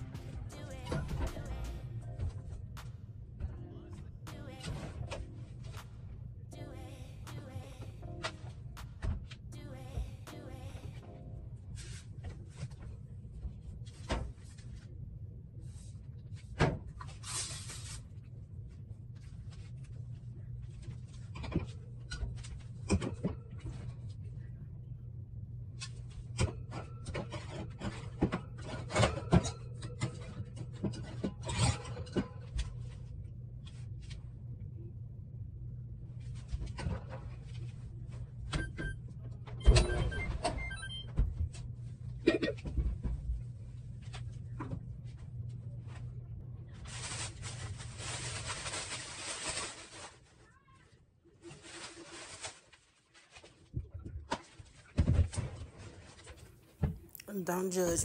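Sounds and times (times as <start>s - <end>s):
steady low hum: 0.0s - 31.4s.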